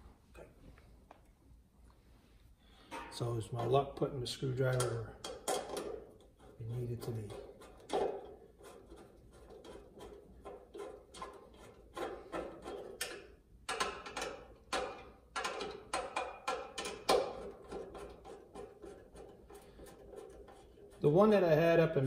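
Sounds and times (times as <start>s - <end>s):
screwdriver scraping strokes: 7.4s - 13.1s, 17.4s - 21.1s.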